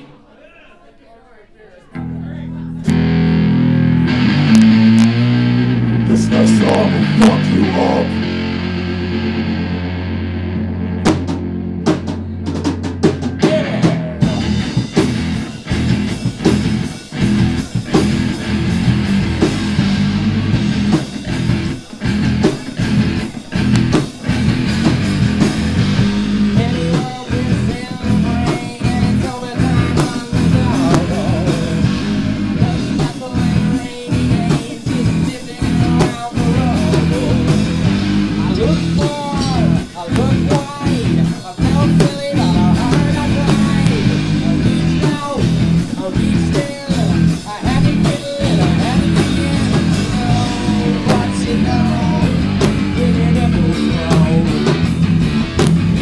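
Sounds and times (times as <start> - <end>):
low guitar note: 2.0 - 12.3
live rock band playing: 2.0 - 56.0
drum hits: 10.9 - 56.0.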